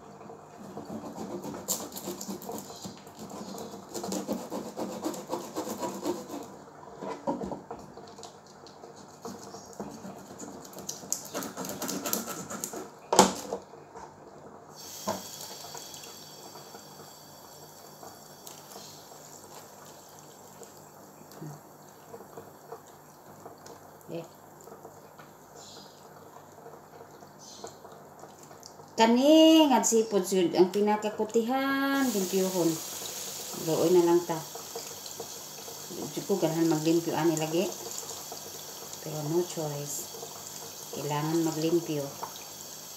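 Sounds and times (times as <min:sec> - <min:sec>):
kitchen tap running into sink: 0:00.0 - 0:13.7, 0:14.7 - 0:29.0, 0:31.6 - 0:42.9
knife scraping on cutting board: 0:00.6 - 0:07.3, 0:09.4 - 0:13.0.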